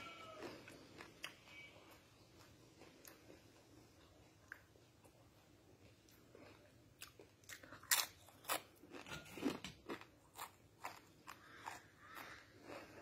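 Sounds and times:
corn chips crunching: 6.2s - 13.0s.

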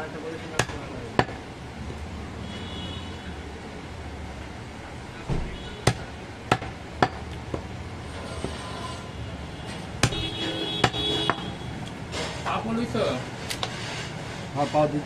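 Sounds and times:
knife chopping meat on wood: 0.6s - 1.4s, 5.8s - 7.7s.

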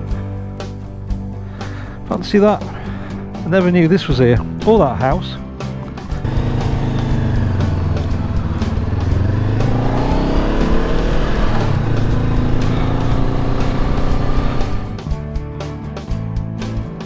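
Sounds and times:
faint background music: 0.0s - 17.0s
motorcycle engine pulling away: 6.2s - 15.0s.

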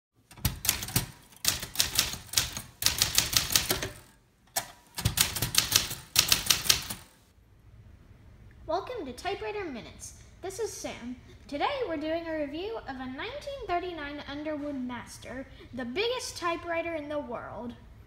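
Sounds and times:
typewriter keystroke clacks: 0.3s - 7.1s.

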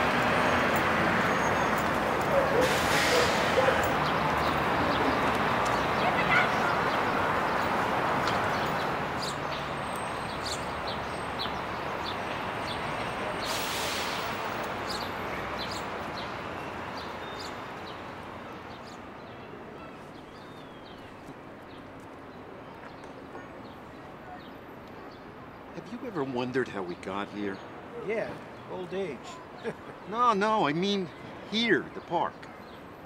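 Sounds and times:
distant traffic hum: 0.0s - 33.0s
brief rush of noise: 2.5s - 3.8s, 13.4s - 14.4s
small birds chirping: 3.2s - 13.5s, 14.8s - 26.0s.

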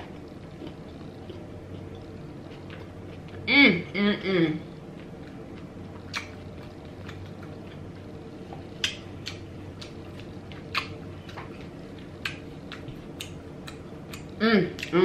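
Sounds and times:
low background hum: 0.0s - 15.0s
wet chewing noises: 4.9s - 15.0s
mouth smacking clicks: 6.1s - 6.4s, 8.8s - 10.0s, 10.6s - 11.0s.

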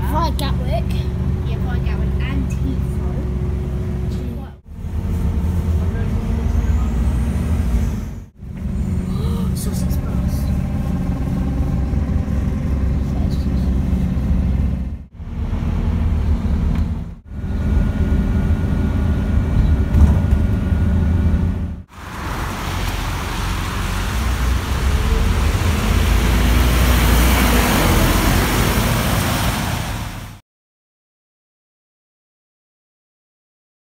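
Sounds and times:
bus engine rumble: 0.0s - 30.4s
roadside traffic noise: 0.0s - 30.4s
tyre hiss on wet road: 21.9s - 30.4s.

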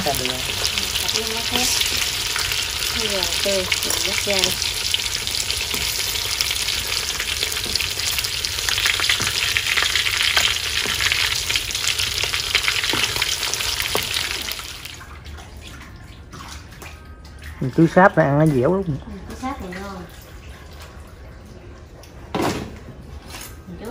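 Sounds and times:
pork sizzling in hot oil: 0.0s - 15.0s.

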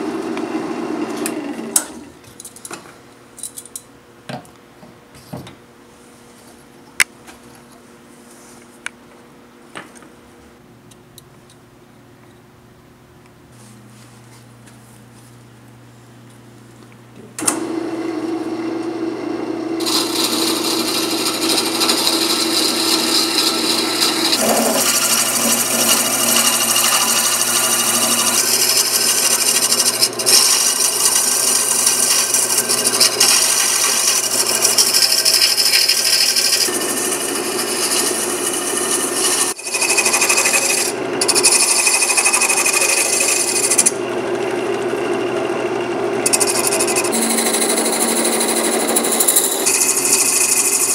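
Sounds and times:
lathe motor humming: 17.4s - 50.9s
turning tool scraping wood: 19.8s - 44.0s, 46.2s - 50.9s.

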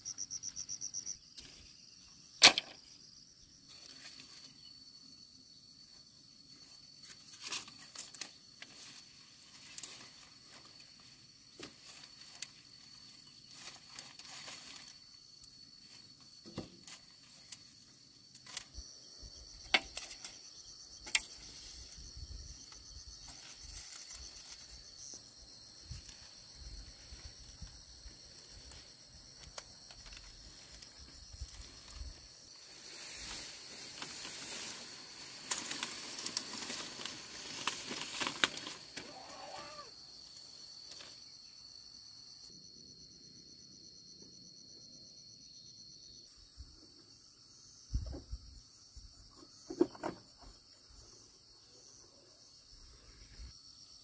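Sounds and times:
high-pitched insect drone: 0.0s - 7.0s, 18.1s - 46.7s
bamboo poles knocking and clattering: 2.4s - 2.9s, 16.4s - 17.1s, 19.6s - 20.4s, 21.0s - 21.5s, 49.7s - 50.6s.

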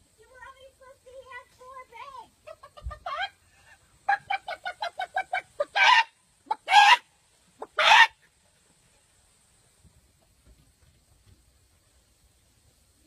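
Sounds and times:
woman imitating chicken clucks: 2.1s - 7.0s.

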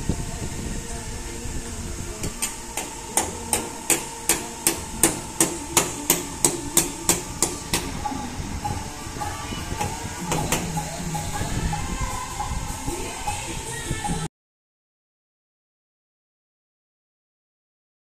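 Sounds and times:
hammer blows on metal: 2.2s - 14.3s.

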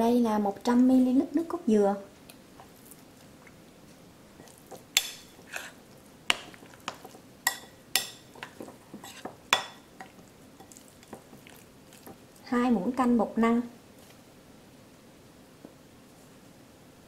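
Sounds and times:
metal spoon clinking bowl: 7.0s - 11.2s.

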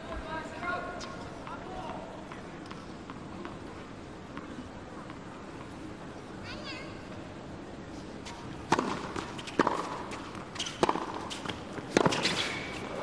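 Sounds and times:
tennis ball struck by rackets: 8.3s - 12.9s.

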